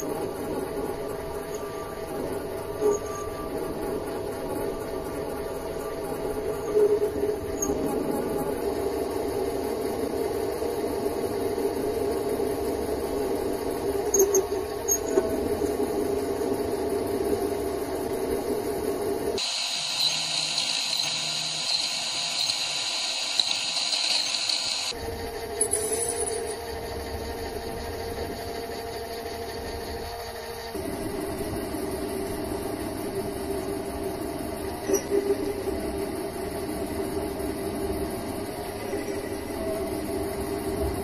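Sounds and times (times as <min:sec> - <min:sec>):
high hiss of cutting: 0:19.4 - 0:25.0
lathe humming: 0:19.4 - 0:25.4.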